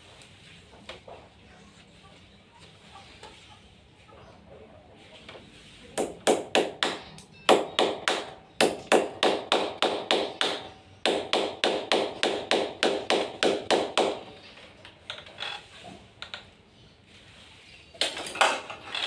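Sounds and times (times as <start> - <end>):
hammer knocking on masonry: 6.0 - 14.2.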